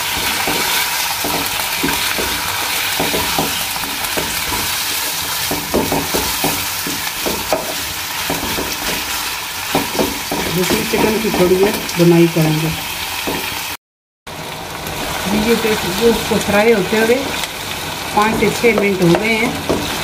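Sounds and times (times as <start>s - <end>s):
spatula scraping and knocking on wok: 0.0s - 12.0s, 13.2s - 13.6s, 18.2s - 20.0s
chicken sizzling in hot oil: 0.0s - 20.0s.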